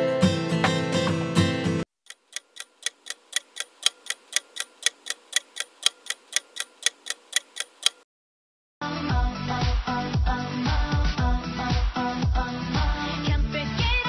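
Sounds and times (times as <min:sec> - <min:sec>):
clock ticking: 0:02.0 - 0:08.0.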